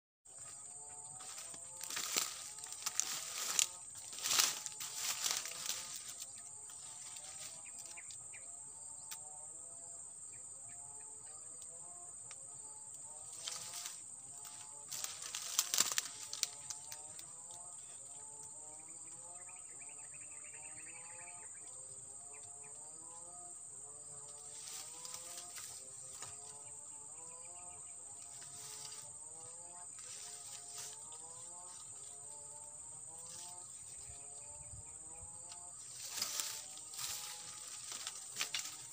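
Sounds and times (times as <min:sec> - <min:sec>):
insects droning: 0:00.3 - 0:38.9
dry leaves crackling and rustling: 0:00.5 - 0:08.0, 0:13.3 - 0:17.3, 0:24.5 - 0:26.4, 0:28.3 - 0:29.4, 0:30.0 - 0:32.5, 0:35.8 - 0:38.9.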